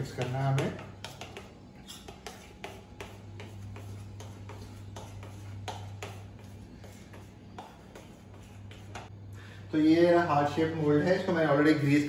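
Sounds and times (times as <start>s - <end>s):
utensil stirring batter in glass bowl: 0.0s - 9.1s
steady low hum: 0.0s - 12.0s.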